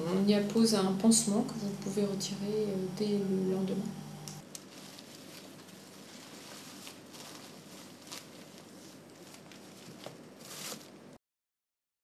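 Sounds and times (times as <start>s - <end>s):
fabric drape rustling: 4.1s - 11.2s.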